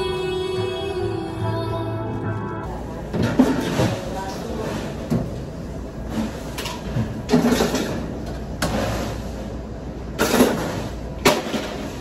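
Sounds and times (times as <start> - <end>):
bottles and containers rattling: 6.1 - 9.2.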